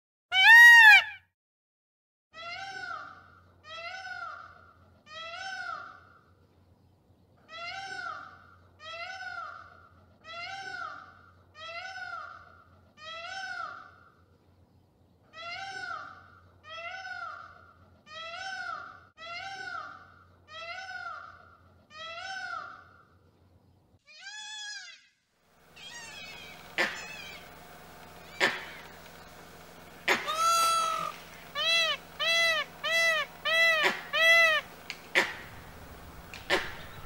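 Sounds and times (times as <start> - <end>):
animal wailing meow-like calls: 0.3 - 1.2, 25.8 - 27.4, 30.2 - 34.6.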